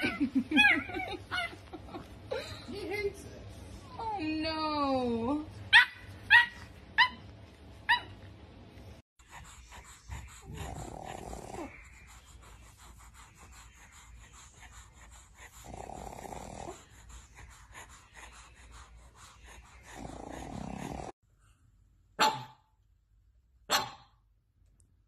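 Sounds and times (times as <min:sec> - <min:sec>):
puppy yipping: 0:05.7 - 0:07.3, 0:07.9 - 0:08.2
dog snoring: 0:10.1 - 0:11.9, 0:15.1 - 0:17.3, 0:19.6 - 0:21.2.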